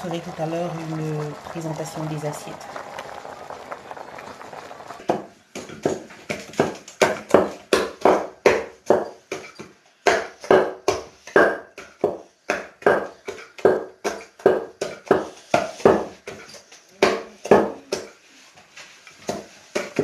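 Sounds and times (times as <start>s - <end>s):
pestle pounding in wooden mortar: 5.0s - 18.2s, 19.2s - 20.0s.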